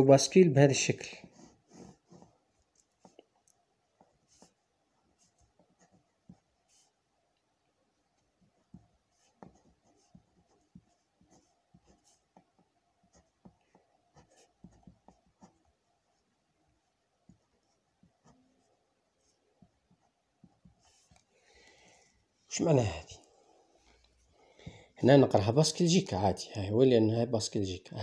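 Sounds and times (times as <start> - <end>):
pen scratching on paper: 1.2 - 7.0, 8.0 - 21.2.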